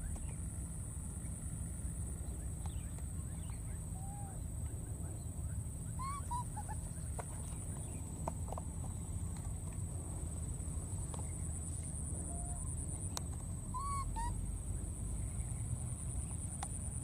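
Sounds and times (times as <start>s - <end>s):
low outdoor rumble: 0.0s - 17.0s
steady high-pitched hum: 0.0s - 17.0s
baby monkey squeaky calls: 6.0s - 7.0s, 13.7s - 14.4s.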